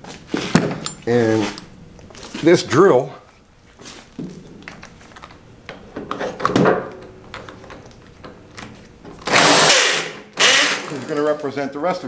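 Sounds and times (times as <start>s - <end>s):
cordless drill rush: 9.3s - 11.2s.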